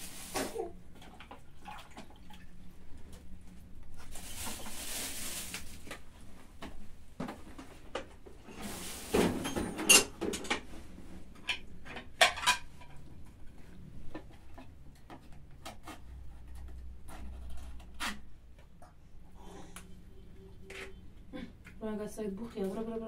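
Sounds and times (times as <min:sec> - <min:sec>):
objects knocking and clattering: 0:06.6 - 0:10.7, 0:11.3 - 0:18.8.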